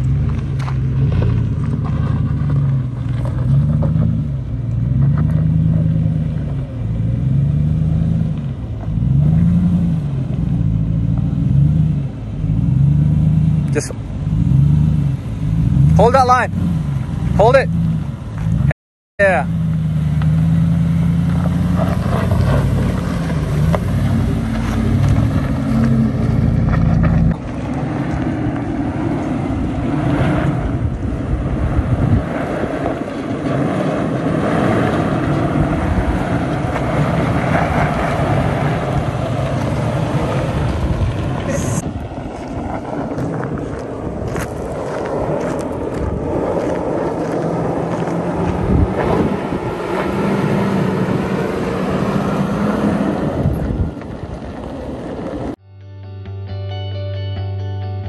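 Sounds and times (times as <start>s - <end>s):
off-road vehicle engine working: 0.0s - 55.6s
pickup engine running: 0.0s - 55.6s
wind on microphone: 22.2s - 55.6s.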